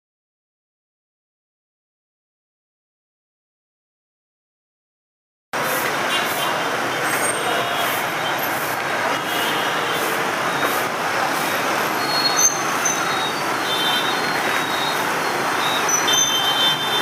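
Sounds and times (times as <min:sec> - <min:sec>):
motorbike and scooter traffic: 0:05.6 - 0:17.0.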